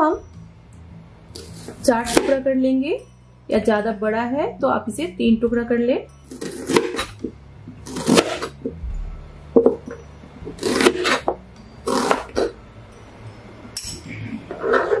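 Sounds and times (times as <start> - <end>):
knife slicing onion on board: 1.4 - 2.4, 6.3 - 8.6, 10.6 - 12.6.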